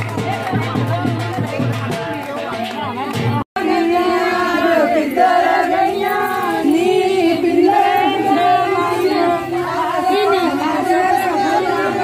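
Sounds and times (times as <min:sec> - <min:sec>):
women singing in chorus: 0:03.6 - 0:12.0.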